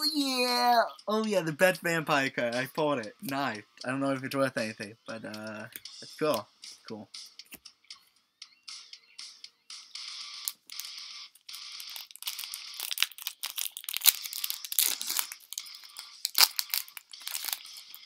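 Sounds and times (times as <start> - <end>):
packaging crinkling and tearing: 11.6 - 18.0.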